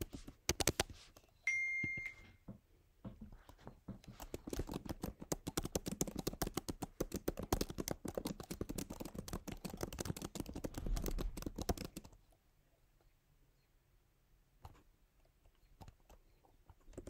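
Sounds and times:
typing on computer keyboard: 0.0 - 0.9, 4.0 - 12.2, 15.8 - 17.0.

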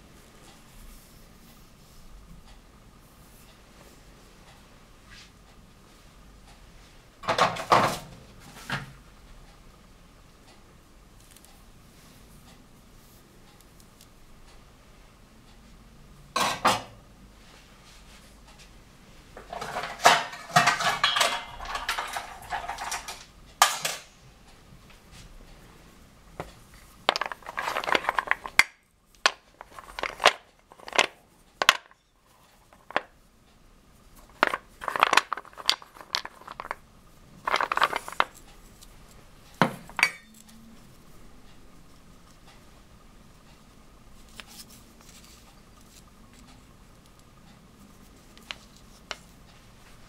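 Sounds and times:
faint steady hum: 0.0 - 50.0
wooden pieces clattering in steel bowl: 19.5 - 24.1, 27.0 - 32.0, 32.6 - 33.1, 34.2 - 36.8, 37.4 - 38.4, 39.8 - 40.3.

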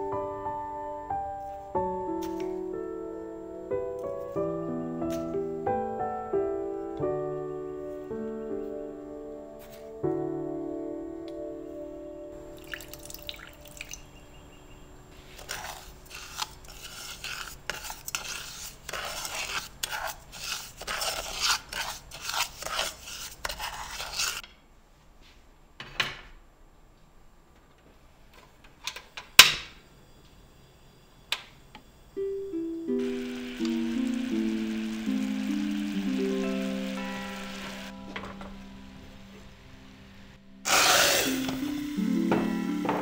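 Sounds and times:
soft music: 0.0 - 17.0, 32.1 - 43.0
wooden spoon scraping sugar in pot: 15.2 - 24.4, 40.7 - 41.5.

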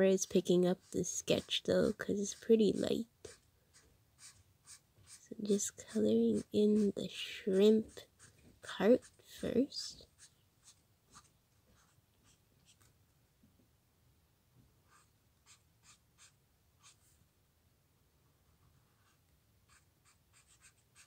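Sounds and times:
marker scratching on paper: 0.3 - 5.2, 5.9 - 9.2, 9.9 - 12.9, 14.9 - 17.2, 18.7 - 21.0.

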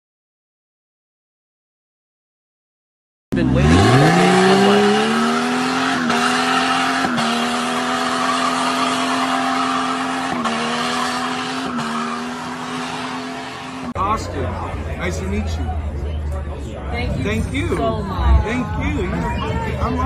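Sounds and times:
engine revving hard under load: 3.4 - 14.0.

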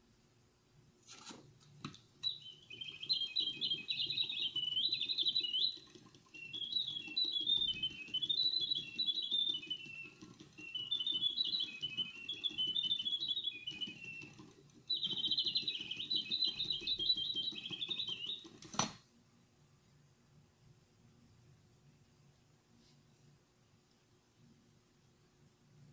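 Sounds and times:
mechanical bird chirping and trilling: 2.2 - 18.9
clockwork mechanism whirring: 2.3 - 18.8.

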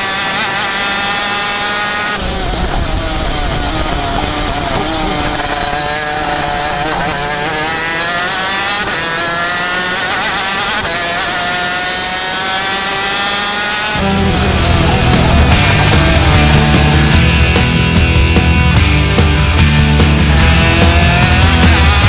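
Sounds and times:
two-stroke engine at full throttle: 0.0 - 22.0
loud rock music: 13.7 - 22.0.

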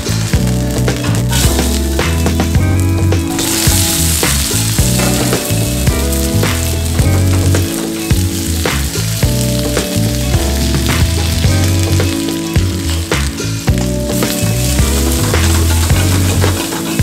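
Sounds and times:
background music with beat: 0.0 - 17.0
food sizzling in a pan: 0.0 - 17.0.

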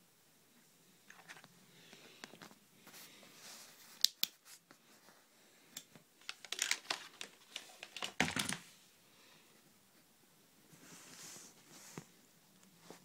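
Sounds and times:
small clicks taps and rustles: 5.7 - 8.6.

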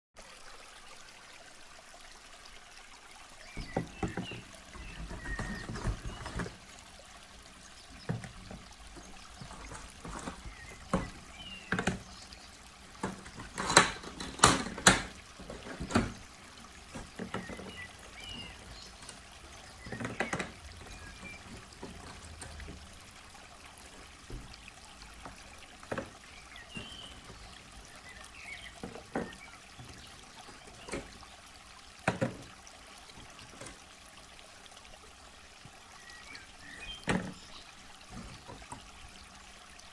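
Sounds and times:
plastic toys clacking in plastic bin: 13.0 - 16.2.

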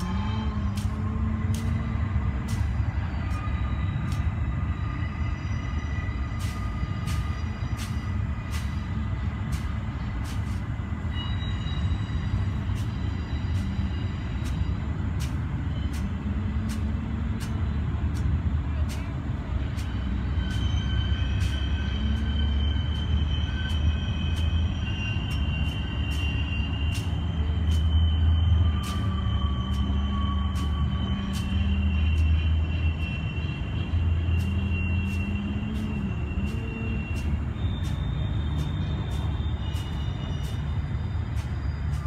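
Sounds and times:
high whining tones: 19.6 - 42.0.

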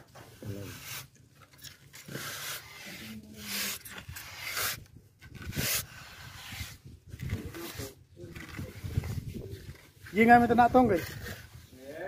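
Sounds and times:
scraping on plaster: 0.1 - 12.0.

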